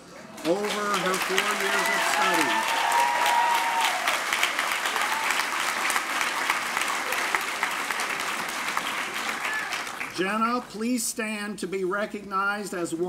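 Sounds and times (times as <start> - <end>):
audience applauding: 0.3 - 10.2.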